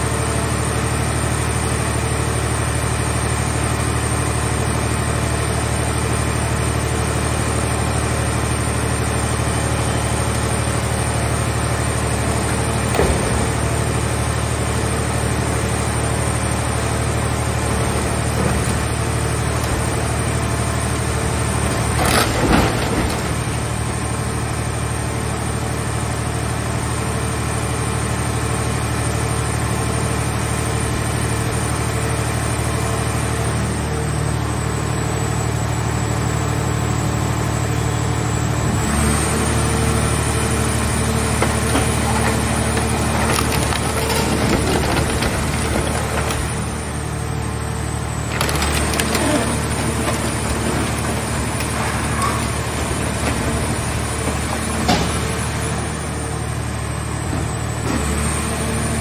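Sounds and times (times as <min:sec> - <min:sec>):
hydraulic baler humming: 0:00.0 - 0:59.0
metal crunching: 0:40.7 - 0:47.2, 0:47.8 - 0:55.9.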